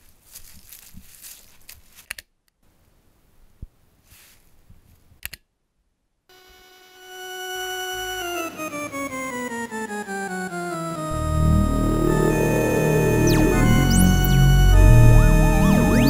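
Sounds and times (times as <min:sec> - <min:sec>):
faint rustling: 0:00.0 - 0:02.1, 0:03.6 - 0:05.1
held musical note: 0:06.8 - 0:16.0.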